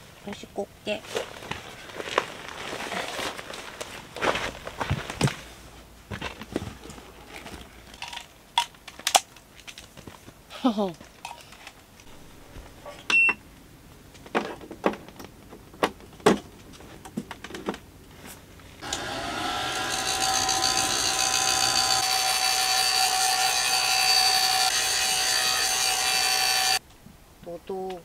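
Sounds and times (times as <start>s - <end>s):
hair dryer blowing: 18.8s - 26.8s.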